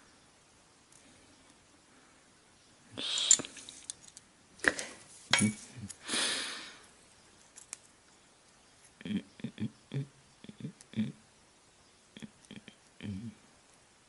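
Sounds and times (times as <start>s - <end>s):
short breathy hiss: 2.9s - 3.8s, 6.0s - 6.9s.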